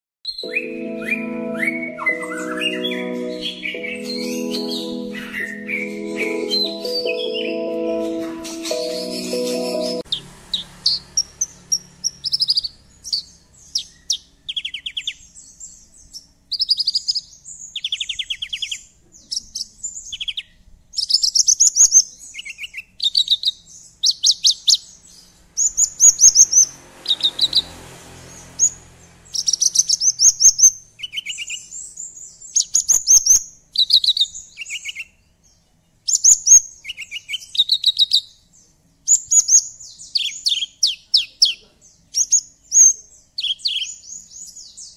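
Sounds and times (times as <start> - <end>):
lark singing trilled phrases: 0.3 - 7.6.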